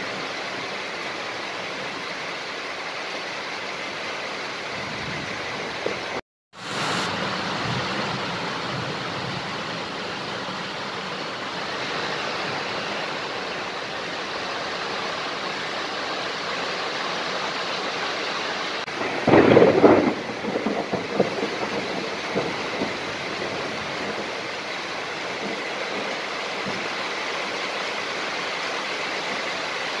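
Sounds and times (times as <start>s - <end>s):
heavy rain pouring: 0.0s - 30.0s
thunderclap with crackling rumble: 18.9s - 27.0s.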